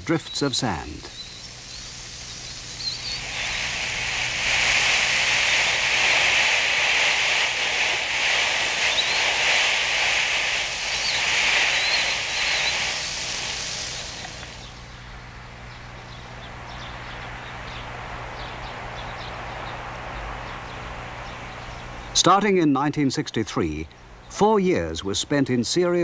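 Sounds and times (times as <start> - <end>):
wind blowing sand: 0.9 - 15.5.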